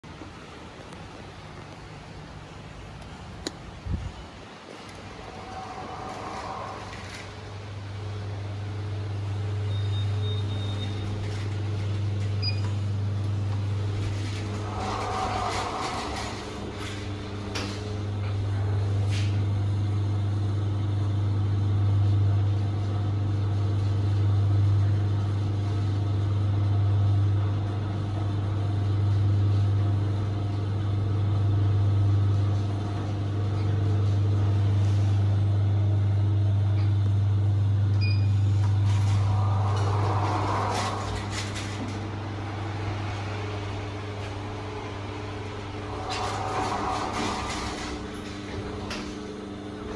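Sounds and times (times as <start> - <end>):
lift humming: 0.0 - 49.9
short rush of sound: 38.7 - 43.3.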